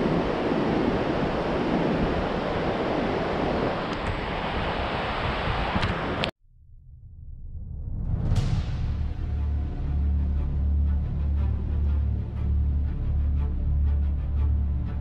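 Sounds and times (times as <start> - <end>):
ocean surf on beach: 0.0 - 6.3
wind buffeting microphone: 0.0 - 6.3.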